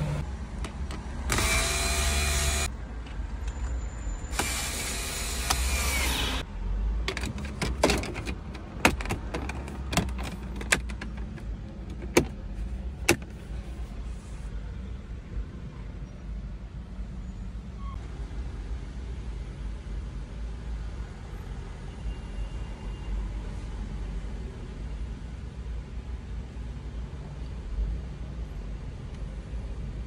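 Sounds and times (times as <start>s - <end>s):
cordless drill running: 1.3s - 2.7s, 4.3s - 6.4s.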